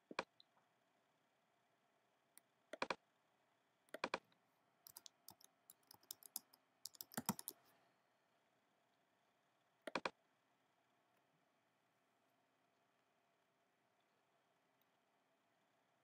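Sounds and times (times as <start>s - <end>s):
faint keyboard typing clicks: 3.9s - 7.8s.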